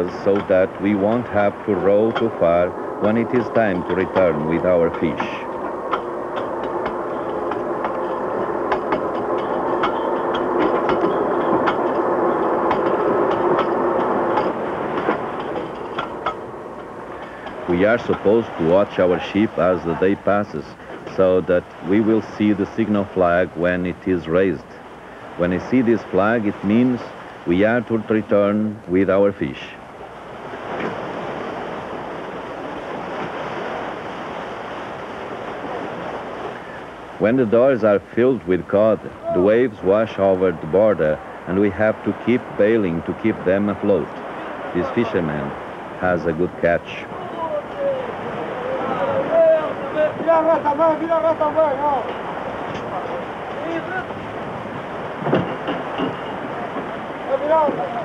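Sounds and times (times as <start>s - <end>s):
anchor windlass clattering: 0.0s - 20.3s, 47.2s - 58.0s
sea waves: 0.0s - 58.0s.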